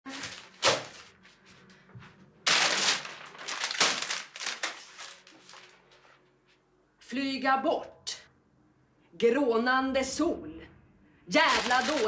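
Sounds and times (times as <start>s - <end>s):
paper rustling: 0.1s - 1.4s, 2.4s - 6.2s, 11.4s - 12.0s.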